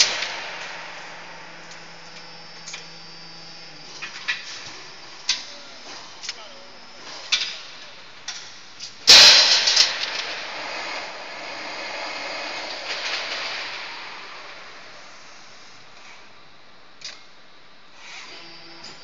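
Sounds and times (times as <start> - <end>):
hydraulic press clicks: 0.0 - 5.6
hydraulic press pressure hiss: 0.0 - 8.1
soft rushing air: 0.0 - 8.8.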